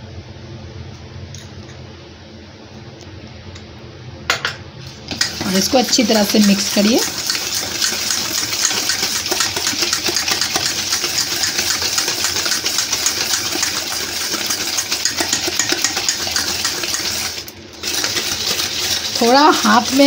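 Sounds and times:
utensil scraping steel bowl: 0:05.2 - 0:20.0.

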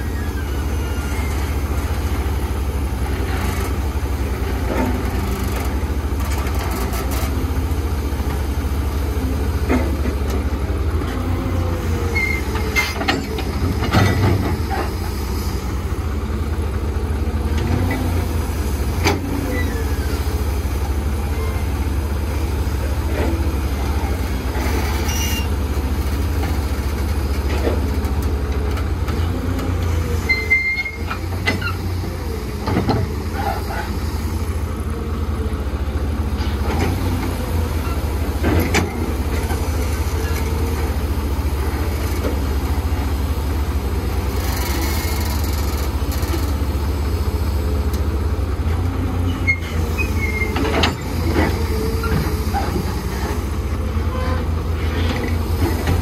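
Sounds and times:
excavator diesel engine droning: 0:00.0 - 0:56.0
machine squeaks and creaks: 0:12.1 - 0:14.9, 0:24.6 - 0:25.6, 0:30.2 - 0:31.9, 0:49.3 - 0:53.3.

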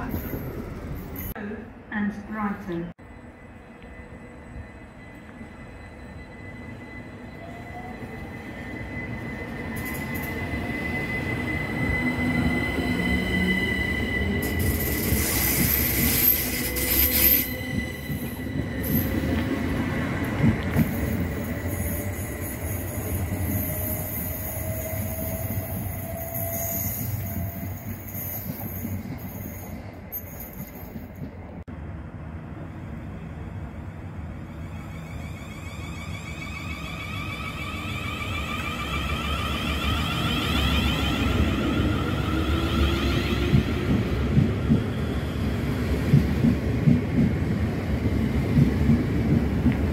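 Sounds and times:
high steady squeal: 0:03.0 - 0:19.6, 0:34.3 - 0:43.8
wheels rumbling on rail: 0:03.1 - 0:49.9.

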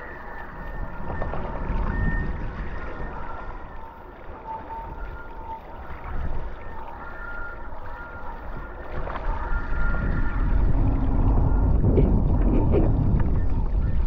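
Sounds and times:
wind rushing over microphone: 0:00.0 - 0:03.8, 0:08.3 - 0:14.0
faint whistling tones: 0:00.0 - 0:12.4, 0:13.1 - 0:14.0.

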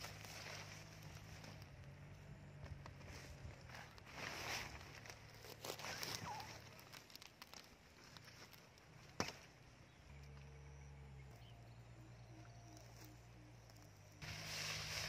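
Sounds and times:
faint low drone: 0:09.8 - 0:15.0.

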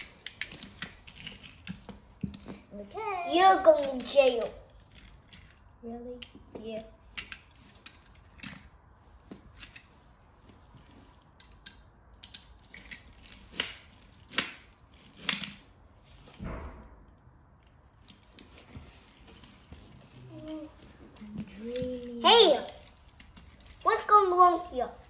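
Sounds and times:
toy cars clicking together: 0:00.0 - 0:02.6, 0:03.2 - 0:06.5, 0:07.1 - 0:08.7, 0:11.4 - 0:15.7, 0:20.2 - 0:24.9.

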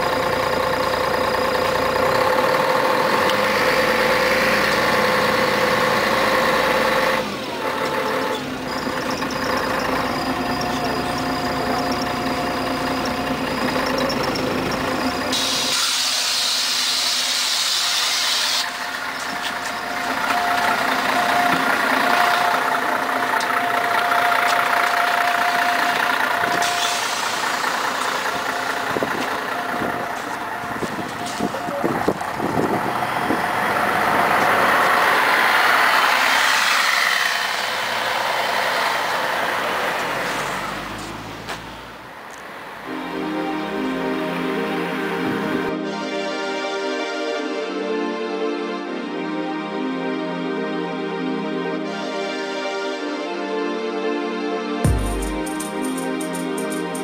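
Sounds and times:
bus engine running: 0:00.0 - 0:47.8, 0:54.8 - 0:57.0
compressed air hiss: 0:15.3 - 0:18.7.

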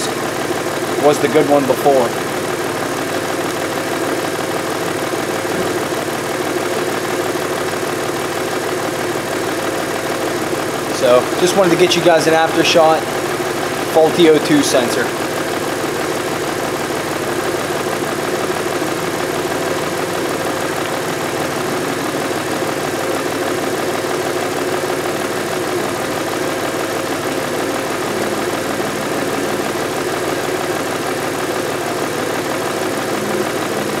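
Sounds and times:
car engine running steadily: 0:00.0 - 0:34.0.

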